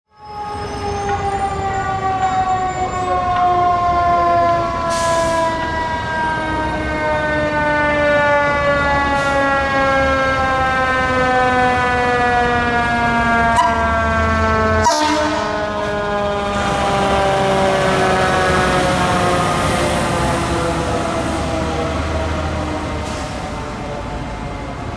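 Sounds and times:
mechanical siren winding down: 0.1 - 23.7
truck engine rumble: 0.4 - 24.9.

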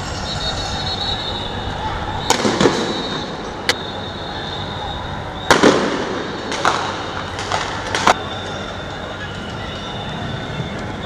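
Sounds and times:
street din: 0.0 - 11.0
gunshots: 2.2 - 3.2, 5.5 - 8.2.

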